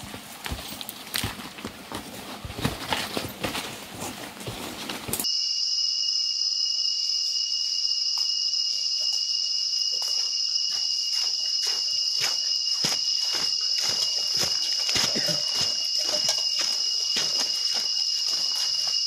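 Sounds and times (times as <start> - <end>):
insects droning: 5.1 - 19.0
footsteps crunching on dry leaves: 10.0 - 19.0.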